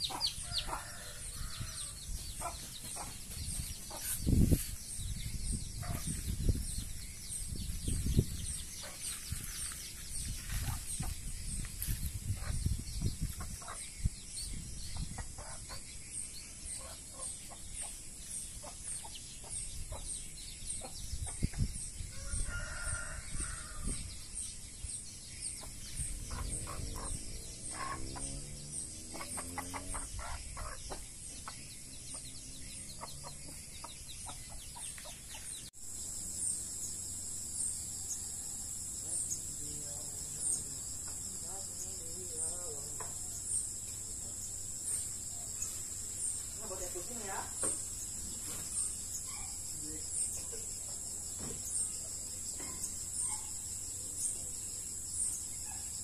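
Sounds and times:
chickens clucking: 0.0s - 1.0s, 2.2s - 4.6s, 10.4s - 13.8s, 14.9s - 15.9s, 25.6s - 28.4s, 29.0s - 35.5s
high insect chirping: 0.0s - 56.0s
rooster crowing: 0.3s - 2.0s, 22.1s - 24.0s.

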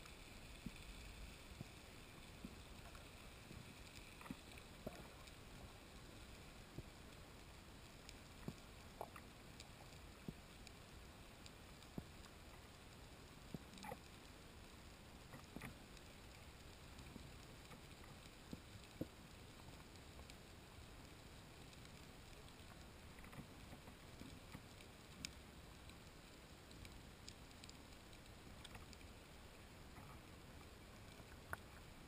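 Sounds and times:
low underwater hiss: 0.0s - 32.0s.

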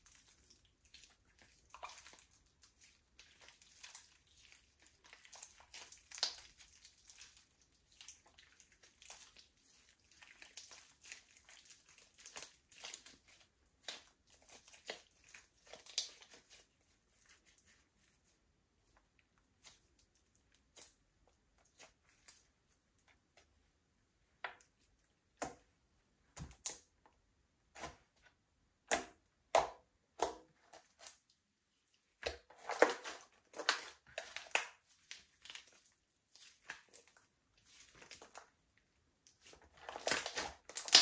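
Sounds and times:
slime squished by hand: 0.1s - 18.2s, 39.2s - 41.0s.

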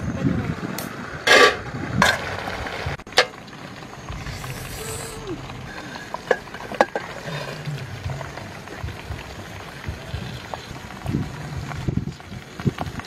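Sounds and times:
pot steaming hiss: 0.0s - 13.0s.

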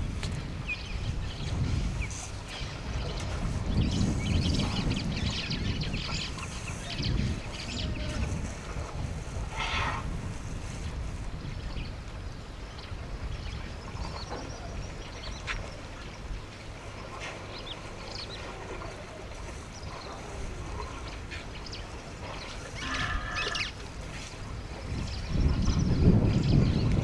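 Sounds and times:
wind rumble on microphone: 0.0s - 27.0s
birds chirping and whistling: 21.0s - 23.8s.

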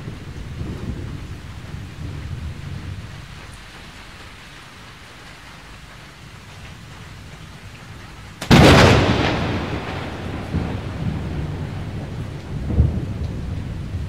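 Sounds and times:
rain hissing: 0.0s - 14.0s
loud thunderclap: 8.4s - 14.0s.

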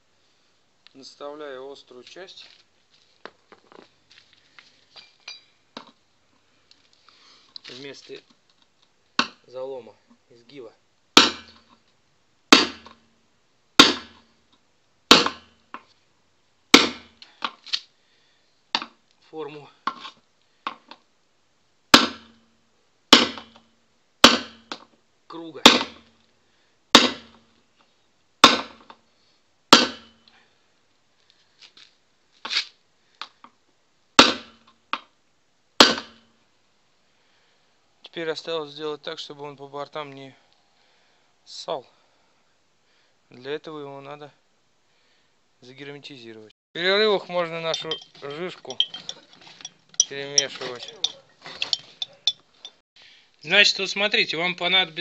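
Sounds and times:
hammer striking metal: 47.6s - 49.2s.

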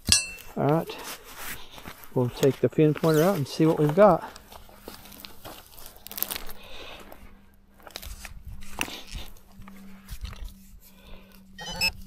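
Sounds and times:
gloves and clothing rustling: 0.0s - 11.6s
soil crunching clicks: 2.1s - 7.1s.

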